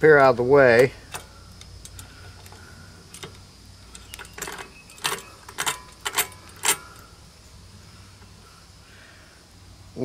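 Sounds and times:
screwdriver clicking on metal: 0.7s - 7.0s.

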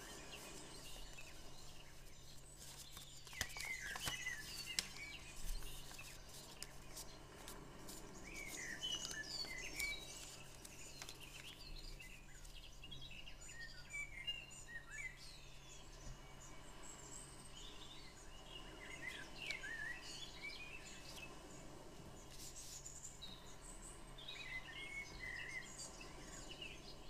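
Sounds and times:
paper crinkling and clicking: 0.0s - 12.6s
small birds chirping: 0.0s - 27.0s.

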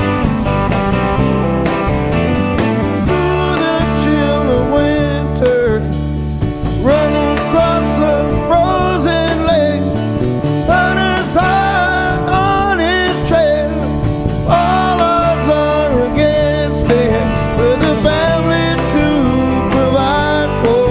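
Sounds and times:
acoustic guitar: 0.0s - 20.9s
drums: 0.0s - 20.9s
electric guitar: 0.0s - 20.9s
man singing: 3.0s - 6.1s, 6.7s - 10.0s, 10.6s - 20.9s.

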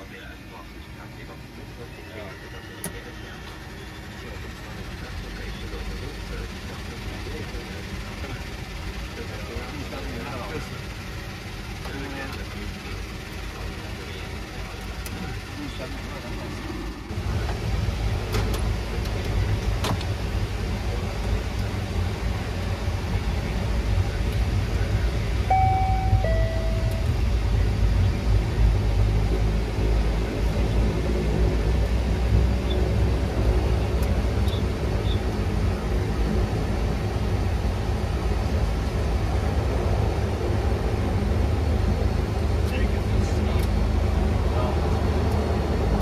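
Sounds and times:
airliner cabin drone with hiss: 0.0s - 10.8s
turboprop engines droning in cabin: 0.0s - 46.0s.

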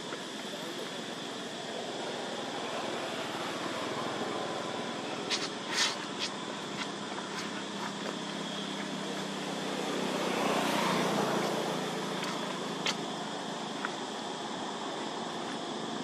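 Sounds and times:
low engine hum: 1.4s - 16.0s
vehicle passing: 2.7s - 13.5s.

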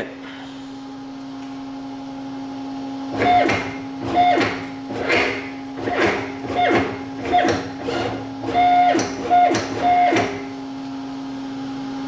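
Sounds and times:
steady hum: 0.0s - 12.0s
stepper motor buzzing: 3.1s - 10.7s.

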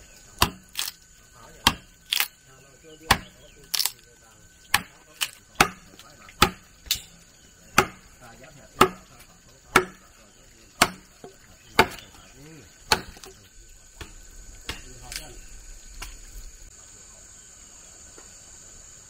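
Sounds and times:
high insect drone: 0.0s - 19.0s
sharp striking blows: 3.1s - 3.9s, 4.7s - 8.2s, 8.8s - 9.1s, 9.7s - 10.1s, 10.8s - 12.1s, 12.8s - 13.3s, 14.0s - 15.2s.

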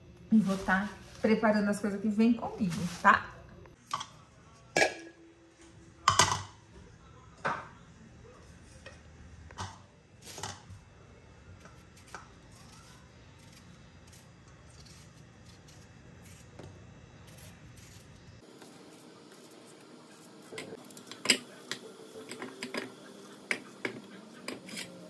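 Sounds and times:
kitchen things clattering: 9.6s - 10.7s.

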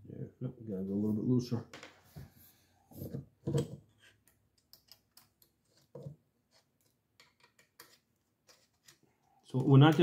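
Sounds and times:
small metal clicks and knocks: 3.4s - 6.1s, 6.8s - 10.0s.

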